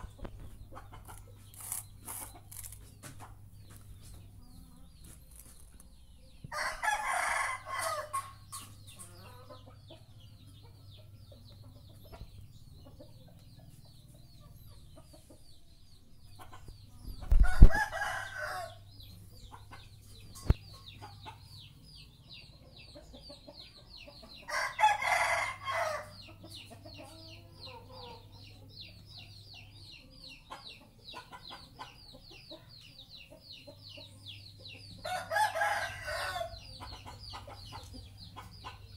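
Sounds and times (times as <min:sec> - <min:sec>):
rooster crowing: 0:06.5 - 0:08.1, 0:35.1 - 0:36.6.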